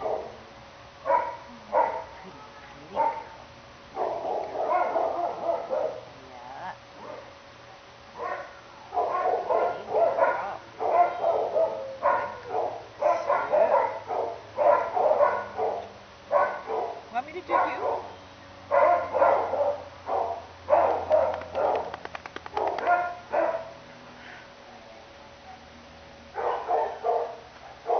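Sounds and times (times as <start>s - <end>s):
dogs barking: 0.0s - 0.4s, 1.0s - 2.2s, 2.9s - 6.1s, 8.2s - 23.8s, 26.3s - 27.9s.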